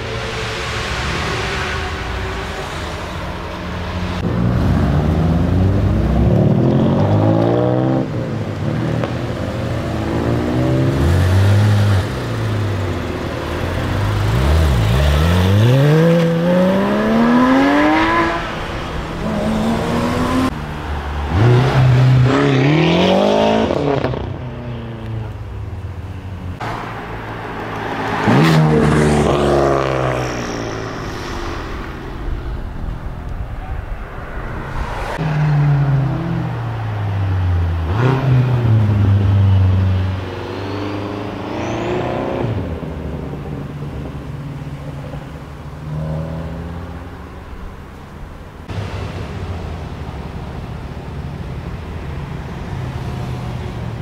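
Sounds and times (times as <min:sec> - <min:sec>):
sports car engines accelerating: 0:03.7 - 0:31.0.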